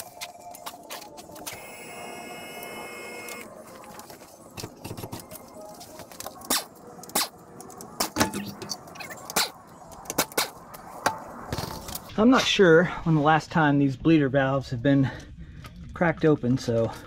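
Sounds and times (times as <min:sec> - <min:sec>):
hydraulic pump whining: 0:01.4 - 0:03.5.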